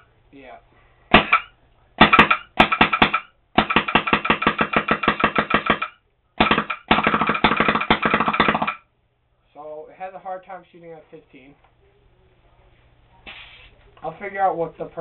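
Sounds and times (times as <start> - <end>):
paintball marker rapid firing: 1.1 - 8.8.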